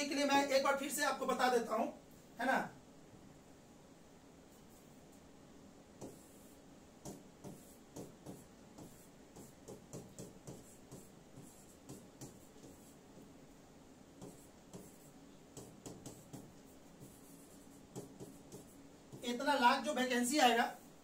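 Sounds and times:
stylus tapping and scratching glass: 7.0s - 12.9s, 14.2s - 17.1s, 17.9s - 19.4s.

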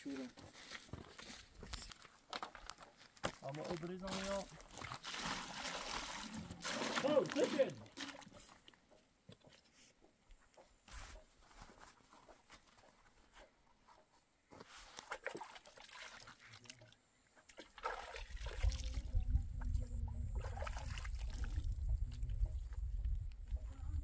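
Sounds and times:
water trickles and splashes: 0.0s - 9.7s, 14.6s - 23.8s
water pouring and sloshing: 0.1s - 9.9s, 14.6s - 23.3s.

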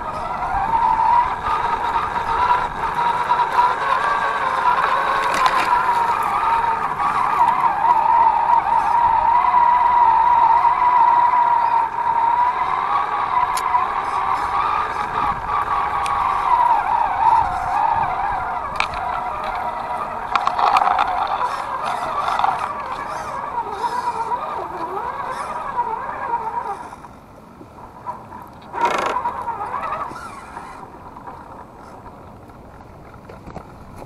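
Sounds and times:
electric motor and gears whining: 0.0s - 34.0s.

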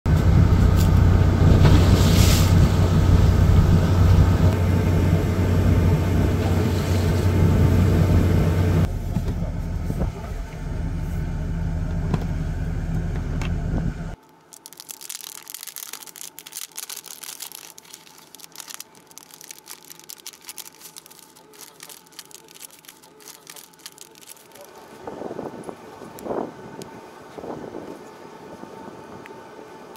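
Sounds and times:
boat engine humming: 0.2s - 29.9s
plastic packets rustling: 14.2s - 25.0s.

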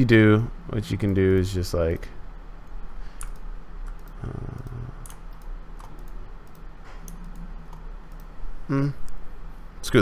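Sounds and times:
keyboard and mouse clicking: 3.2s - 8.3s.

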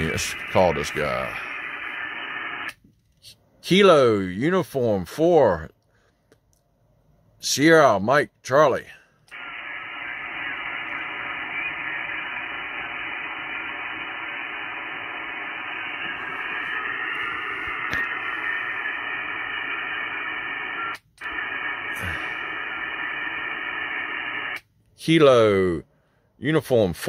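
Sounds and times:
radio static hiss: 0.0s - 3.4s, 9.3s - 25.2s.

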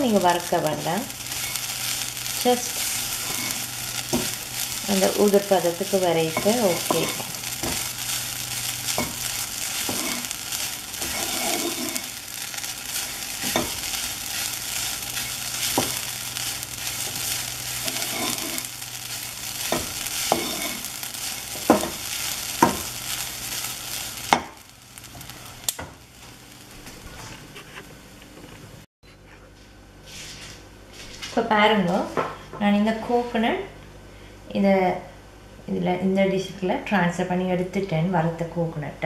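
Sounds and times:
coconut sizzling in a pan: 0.0s - 28.1s
wooden spoon scraping a pan: 0.2s - 24.5s.

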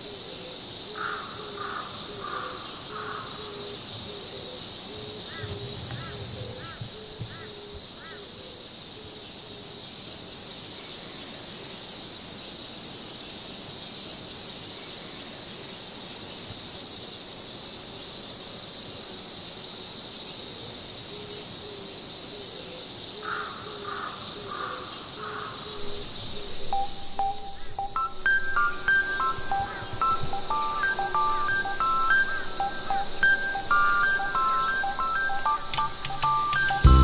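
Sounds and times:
pulsing insect chorus: 0.0s - 37.0s
crow cawing: 1.0s - 3.6s, 5.3s - 8.2s, 23.2s - 26.6s
music notes: 26.7s - 37.0s.

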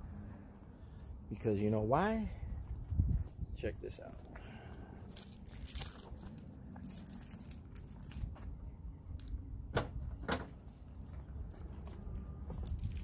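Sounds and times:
keys jingling: 5.0s - 8.3s, 12.4s - 13.0s.

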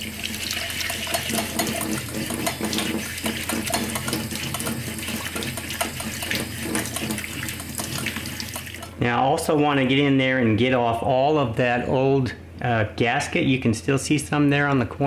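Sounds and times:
faucet running into steel sink: 0.0s - 9.0s
sponge scrubbing and knocking: 0.9s - 8.4s.

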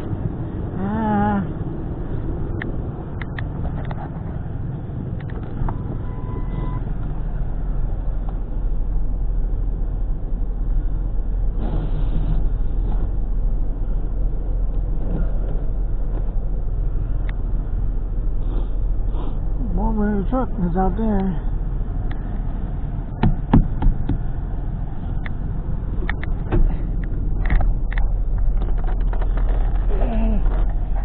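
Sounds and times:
short beep: 6.0s - 6.9s.

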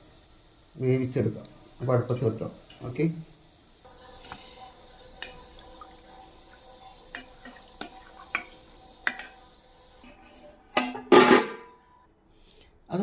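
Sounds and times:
water sloshing in pot: 3.8s - 11.7s
spatula tapping steel pot: 5.2s - 5.5s, 7.1s - 9.4s.

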